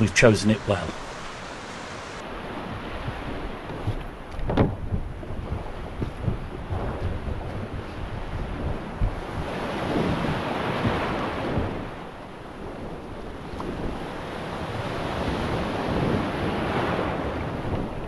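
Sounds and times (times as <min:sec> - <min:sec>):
small surf breaking: 0:00.0 - 0:17.8
wind buffeting microphone: 0:00.0 - 0:18.0.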